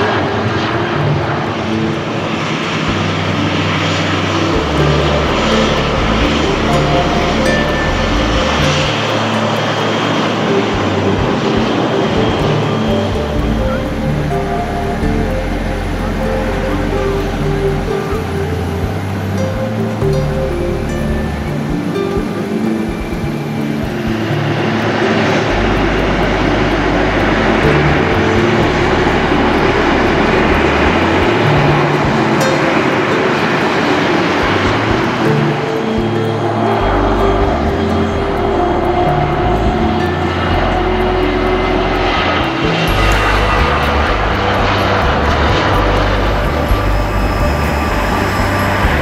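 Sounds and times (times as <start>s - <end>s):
jet engines taxiing: 0.0s - 49.0s.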